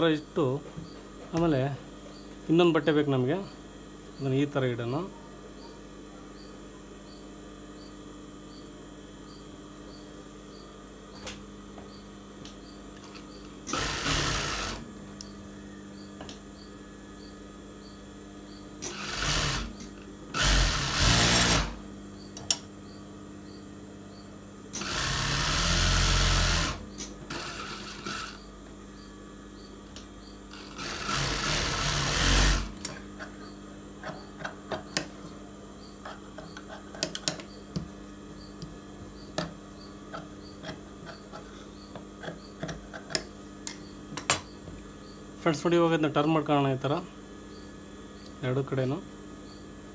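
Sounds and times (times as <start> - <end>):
steady hum: 0.0 - 49.9
industrial sewing machine running: 13.7 - 14.8, 18.8 - 19.7, 20.3 - 21.8, 24.7 - 28.4, 30.5 - 32.8.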